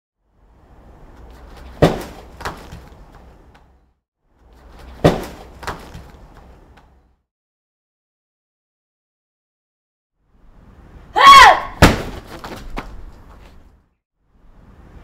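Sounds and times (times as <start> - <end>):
bare foot kicking padded shield: 1.6 - 3.0, 4.9 - 6.2, 11.8 - 13.0.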